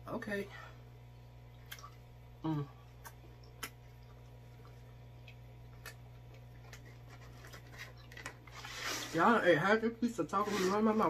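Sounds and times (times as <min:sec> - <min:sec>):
low steady hum: 0:00.0 - 0:11.0
wet mouth clicks and smacks: 0:01.6 - 0:02.0, 0:03.0 - 0:06.8.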